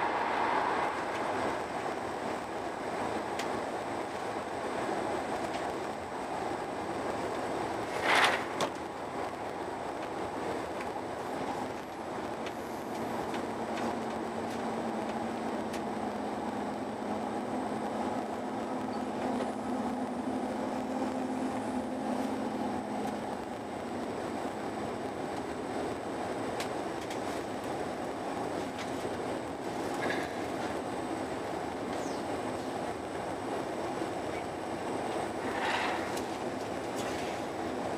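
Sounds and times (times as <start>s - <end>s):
train rumble inside carriage: 0.0s - 37.9s
low steady hum: 9.1s - 26.0s.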